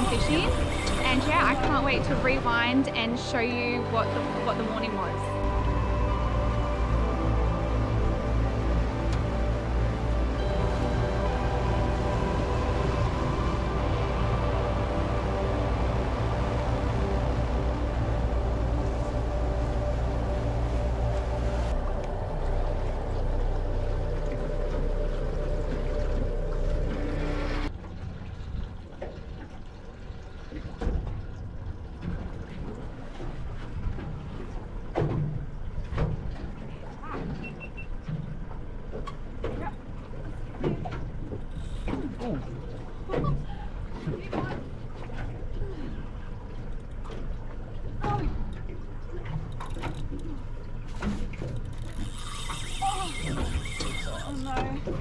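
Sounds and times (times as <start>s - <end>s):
steady low rumble: 0.0s - 37.0s
motorboat engine: 0.0s - 55.0s
water lapping: 0.0s - 55.0s
water rushing and wind: 0.0s - 55.0s.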